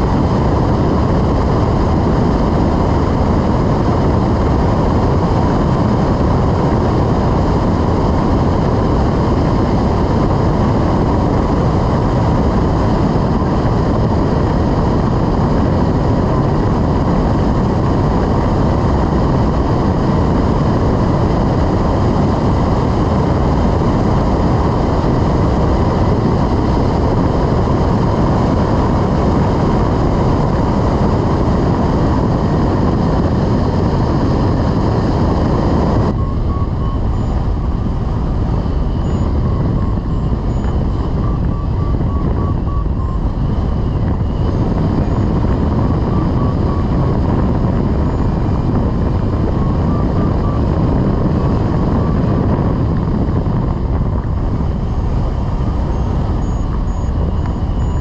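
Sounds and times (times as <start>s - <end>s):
wind rushing over microphone: 0.0s - 58.0s
short high beeps: 36.2s - 37.8s.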